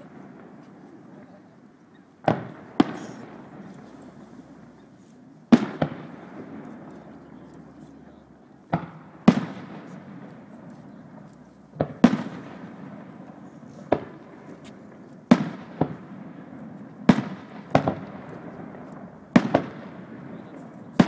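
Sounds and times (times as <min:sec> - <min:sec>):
fireworks shells bursting: 0:02.2 - 0:04.8.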